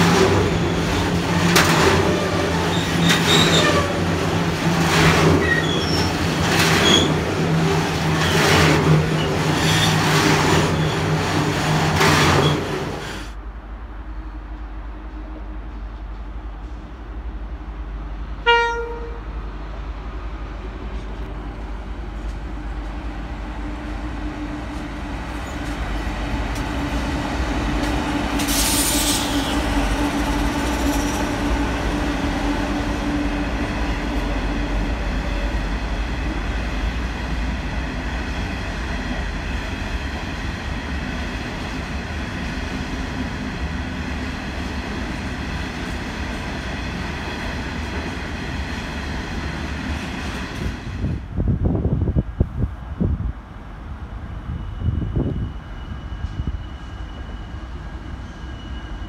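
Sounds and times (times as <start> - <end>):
train wheels clickety-clack: 0.0 - 13.3, 24.6 - 51.2
train horn: 3.3 - 4.1, 18.4 - 19.3.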